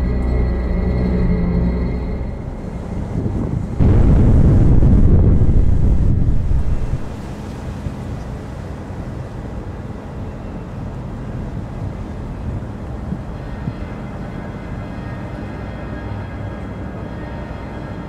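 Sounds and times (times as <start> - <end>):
faint hum: 0.0 - 7.8
wind buffeting microphone: 2.4 - 9.1.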